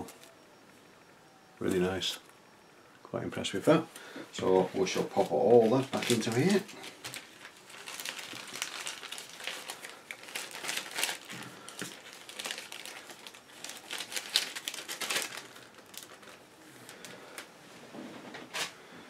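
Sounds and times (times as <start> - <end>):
plastic bags crinkling: 4.4 - 17.5.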